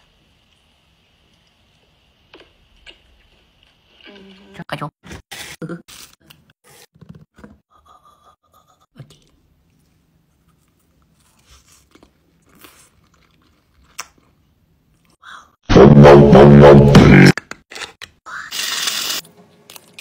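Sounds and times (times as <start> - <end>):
chewing and crunching candy: 10.5 - 15.2
loud deep droning tone: 15.7 - 17.3.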